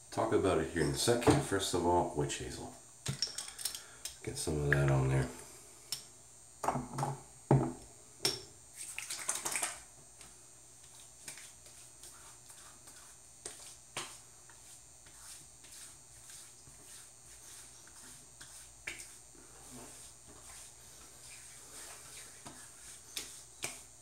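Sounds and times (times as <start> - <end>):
hands patting skin: 8.8 - 19.3, 19.9 - 24.0.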